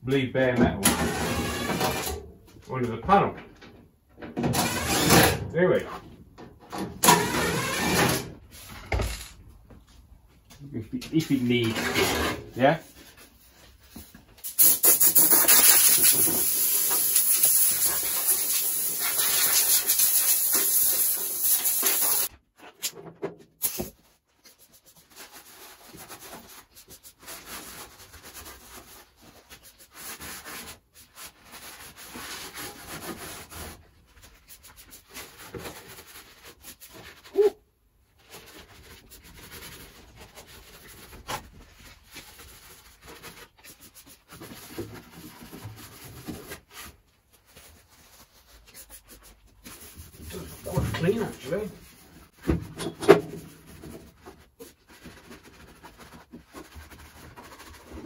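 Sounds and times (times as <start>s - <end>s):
spray gun hissing: 14.6s - 22.3s
rubbing and handling metal panel: 38.1s - 58.0s.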